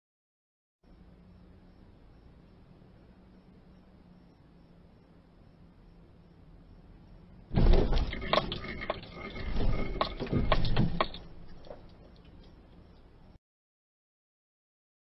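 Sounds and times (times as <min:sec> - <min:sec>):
body panels crunching and scraping: 0:07.5 - 0:12.5.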